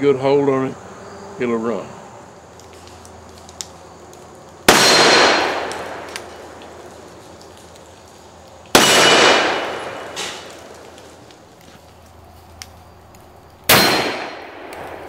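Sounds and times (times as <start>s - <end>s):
revolver shots with echo: 8.8s - 10.7s, 13.7s - 15.0s.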